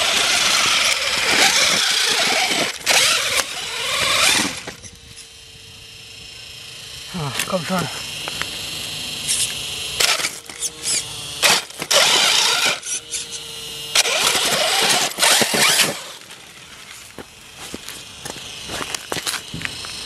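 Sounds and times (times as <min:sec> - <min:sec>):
tyres scrabbling on stone: 0:00.0 - 0:04.8, 0:14.0 - 0:20.0
toy truck motor whine: 0:00.0 - 0:20.0.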